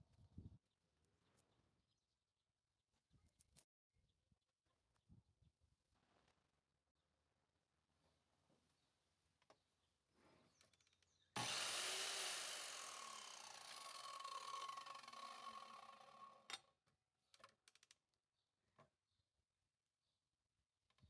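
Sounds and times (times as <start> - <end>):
mitre saw cutting wood: 11.4 - 16.6.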